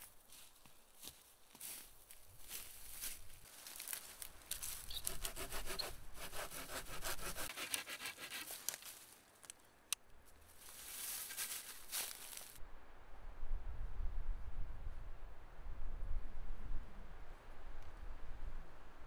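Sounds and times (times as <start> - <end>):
rasping and rustling: 3.0 - 9.1, 10.6 - 12.5
hand saw cutting branch: 4.9 - 8.9.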